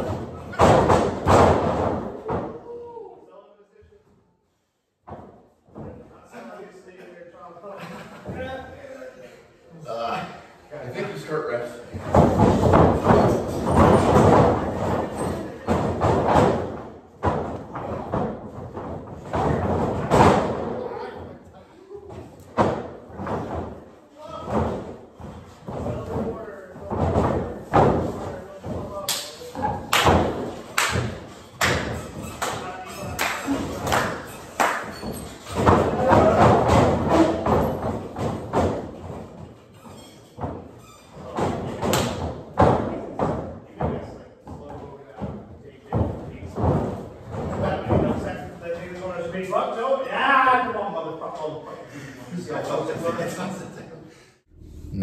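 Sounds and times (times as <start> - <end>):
heavy thuds and slams: 0.0 - 2.6, 11.9 - 20.8, 22.1 - 29.0, 29.6 - 39.5, 40.4 - 48.4.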